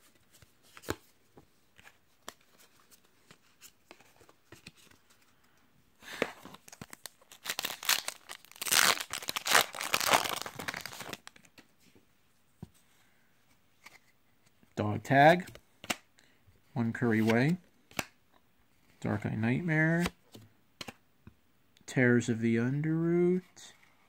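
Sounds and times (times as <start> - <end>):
foil wrapper tearing and crinkling: 6.7 - 11.3.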